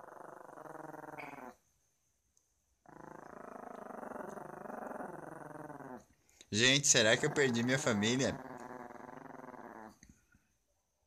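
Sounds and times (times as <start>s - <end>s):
small dog growling: 0.0s - 1.6s, 2.8s - 6.1s, 7.0s - 10.2s.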